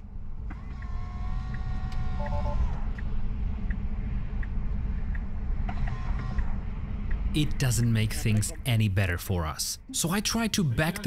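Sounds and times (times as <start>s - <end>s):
light ticking: 0.0s - 8.0s
steady low rumble: 0.0s - 11.0s.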